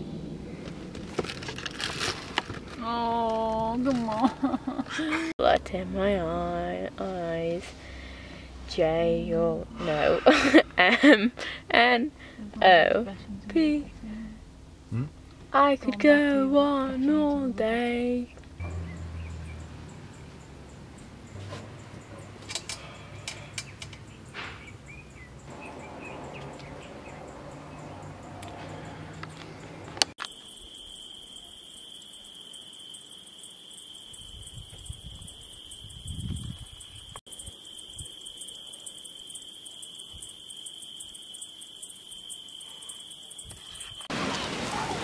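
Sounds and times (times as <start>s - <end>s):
insects chirping: 17.6s - 44.7s
bird chirps: 18.6s - 20.1s, 23.6s - 28.0s.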